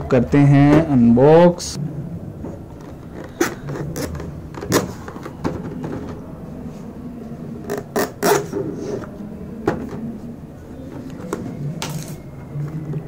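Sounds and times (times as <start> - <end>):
low hum: 1.7 - 7.8.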